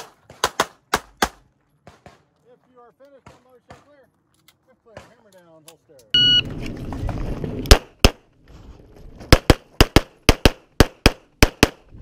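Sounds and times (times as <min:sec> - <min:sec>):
pistol shots: 0:00.0 - 0:02.3, 0:09.3 - 0:11.9.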